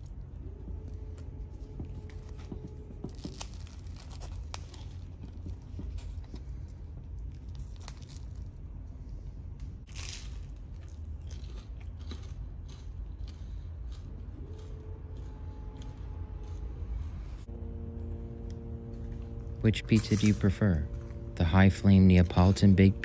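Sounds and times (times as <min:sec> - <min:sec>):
steady low hum: 0:00.0 - 0:23.0
pizza crust crackling and tearing: 0:02.0 - 0:08.6, 0:09.8 - 0:13.3, 0:19.6 - 0:21.1.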